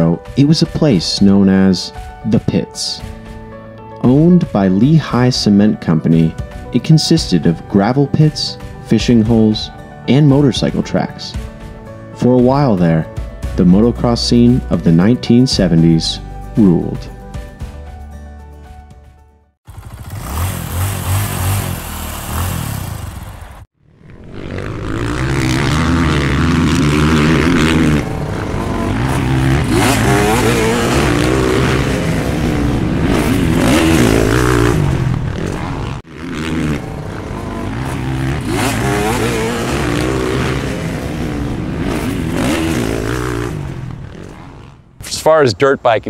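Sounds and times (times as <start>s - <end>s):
dirt bike engines revving: 19.7s - 46.0s.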